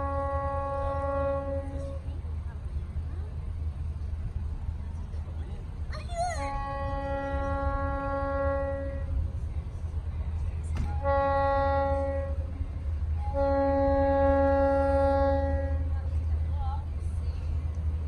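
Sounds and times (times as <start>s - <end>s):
train horn blasts: 0.0s - 2.2s, 6.3s - 9.4s, 10.8s - 16.2s.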